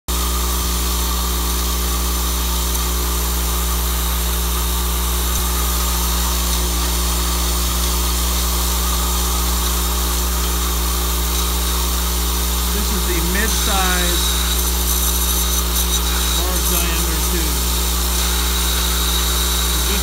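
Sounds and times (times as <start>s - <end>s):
vibrating drive humming: 0.1s - 20.0s
small tubes rattling: 12.8s - 17.3s.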